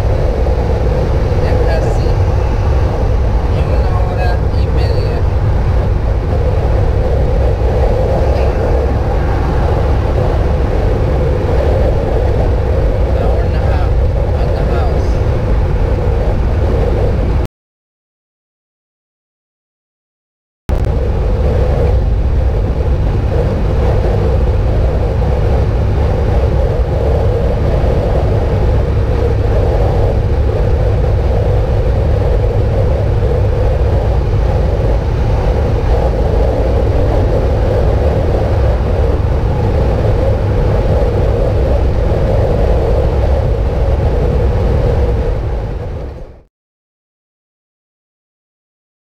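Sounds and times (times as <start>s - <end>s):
car road noise at speed: 0.0s - 17.5s, 20.7s - 46.5s.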